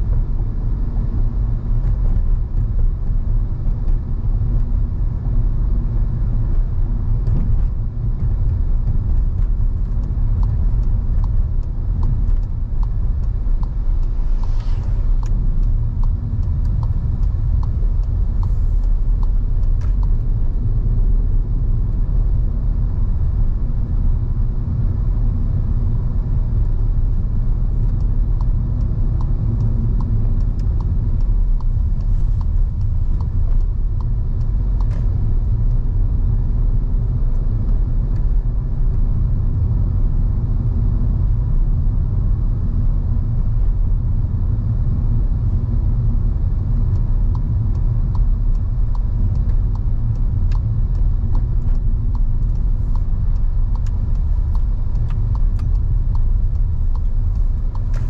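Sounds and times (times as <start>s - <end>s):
car engine and road noise: 0.0s - 58.0s
faint ticks: 7.2s - 20.3s, 27.7s - 35.8s, 46.8s - 58.0s.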